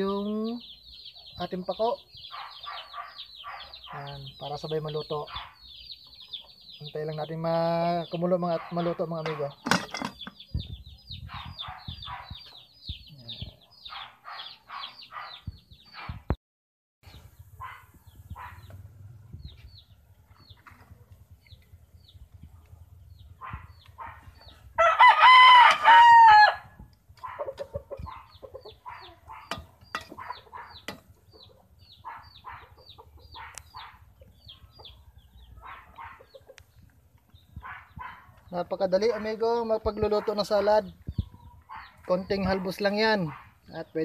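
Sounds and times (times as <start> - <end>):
rooster crowing: 24.8 - 26.8
chicken clucks: 27.2 - 37.0.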